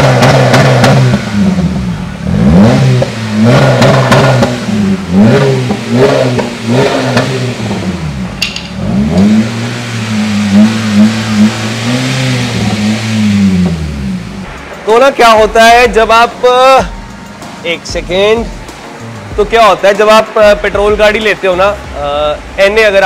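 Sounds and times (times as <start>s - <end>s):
car engine revving and idling: 0.0s - 14.8s
sharp click: 8.4s - 9.3s.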